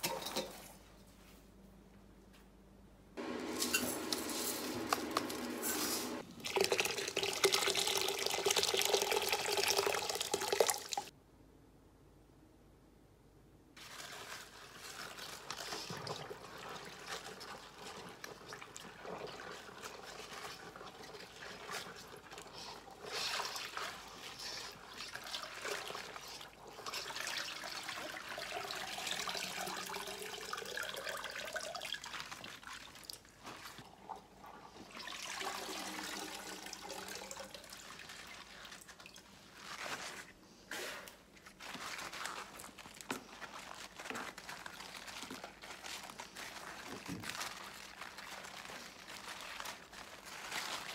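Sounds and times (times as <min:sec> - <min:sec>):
water sloshing and dripping: 0:13.8 - 0:40.3, 0:41.4 - 0:50.9
wet leaves rustling: 0:41.4 - 0:50.9.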